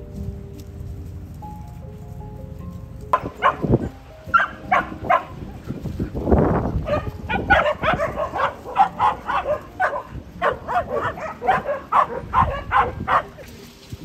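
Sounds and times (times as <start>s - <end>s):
dogs barking: 3.1s - 13.6s.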